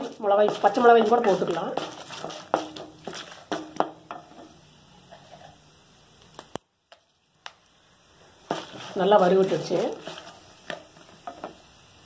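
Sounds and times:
wooden spoon tapping and scraping: 0.0s - 5.6s, 8.4s - 11.7s
quiet frying in oil: 0.0s - 12.0s.

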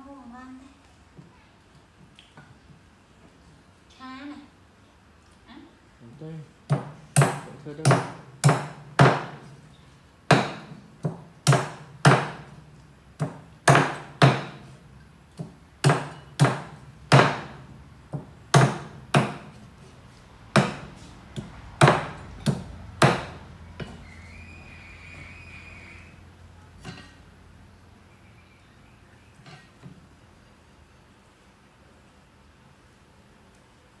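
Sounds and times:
cleaver chopping on wooden board: 6.7s - 9.5s, 10.3s - 12.5s, 13.2s - 14.8s, 15.4s - 19.6s, 20.5s - 24.0s.

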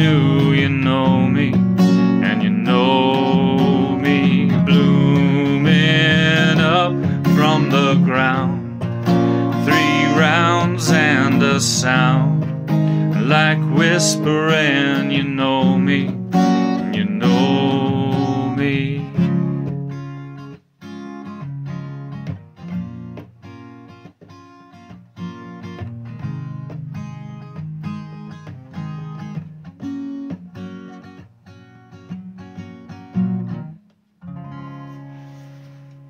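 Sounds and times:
acoustic guitar strumming: 0.0s - 36.0s.

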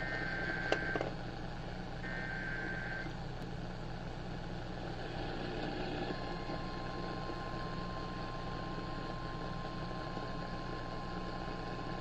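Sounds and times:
radio static hum: 0.0s - 1.2s, 2.0s - 3.4s
click: 0.1s - 1.1s.

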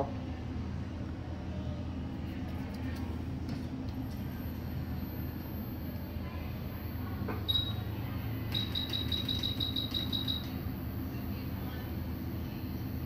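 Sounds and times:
steady low hum: 0.0s - 13.0s
short electronic beeps: 6.7s - 13.0s.

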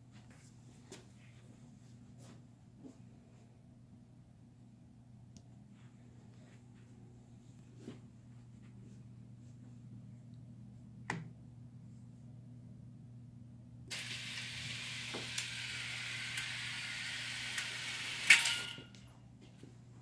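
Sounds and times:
motorized drapes hissing along track: 13.9s - 18.9s.

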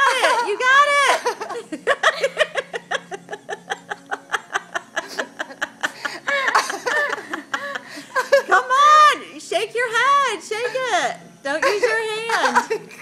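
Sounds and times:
person laughing: 0.0s - 8.5s.

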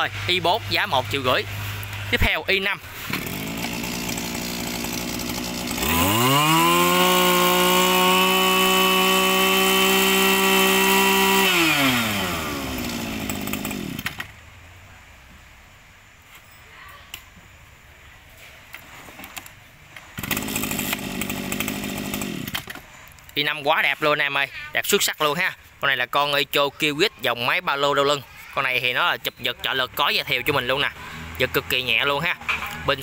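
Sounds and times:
brushcutter two-stroke engine: 2.9s - 14.3s, 20.2s - 22.8s.

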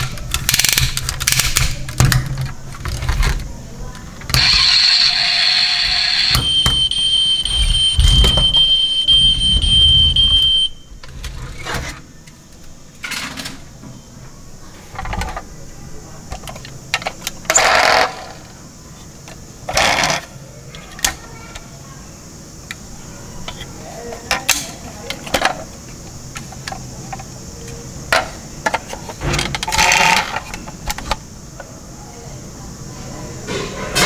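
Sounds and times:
plastic toy rattling: 0.0s - 4.6s, 28.6s - 31.2s
plastic clicks: 0.0s - 4.7s
high electronic tone: 4.3s - 10.8s.

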